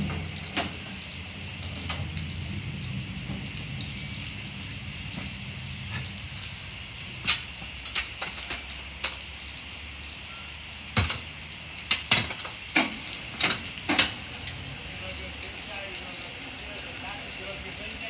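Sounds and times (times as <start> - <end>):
steam hissing: 0.0 - 9.0
metal clanks and scrapes: 7.2 - 8.1.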